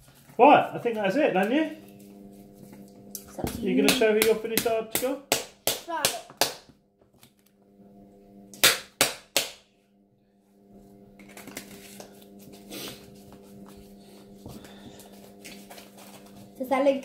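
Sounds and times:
steady low hum: 0:00.0 - 0:17.0
slime slapped between palms: 0:08.6 - 0:09.6.

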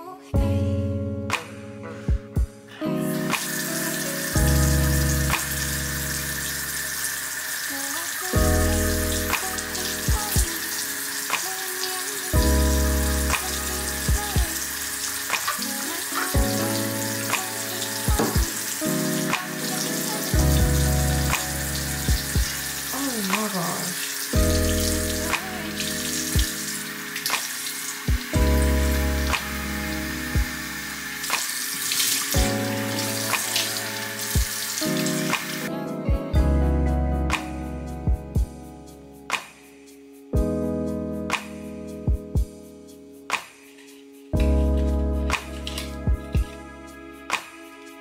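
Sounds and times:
background music with mellow beat: 0:00.0 - 0:48.0
tap running into sink: 0:18.1 - 0:18.7.

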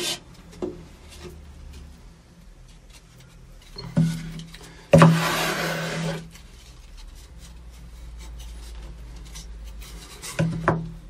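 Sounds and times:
stir stick scraping wood board: 0:04.9 - 0:10.7.

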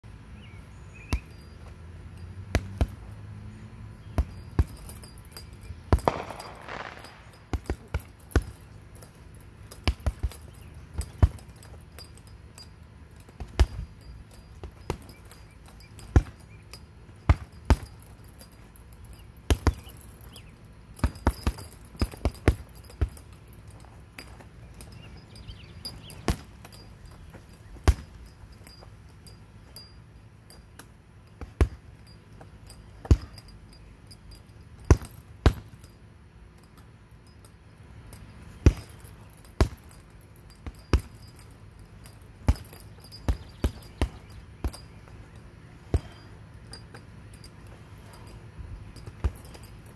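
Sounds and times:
chain jangling: 0:00.4 - 0:49.9
punches thudding on punching bag: 0:01.1 - 0:01.7, 0:02.5 - 0:03.2, 0:04.1 - 0:28.9, 0:30.7 - 0:32.1, 0:33.0 - 0:33.5, 0:34.8 - 0:36.0, 0:38.5 - 0:48.4, 0:49.0 - 0:49.9.

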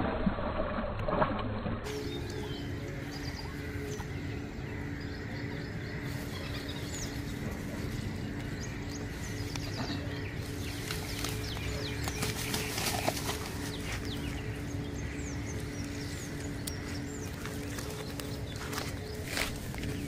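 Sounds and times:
steady low hum: 0:00.0 - 0:20.0
small birds chirping: 0:01.9 - 0:20.0
grass rustling and clicks: 0:05.9 - 0:20.0.

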